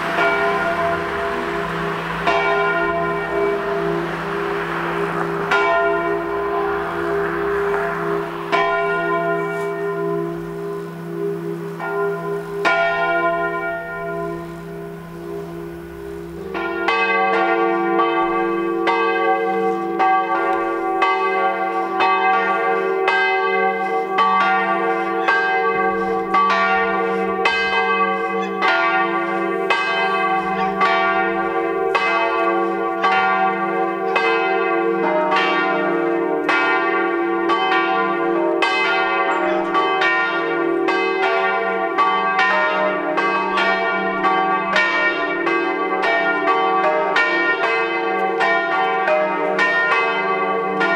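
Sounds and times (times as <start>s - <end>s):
church bells pealing: 0.0s - 50.9s.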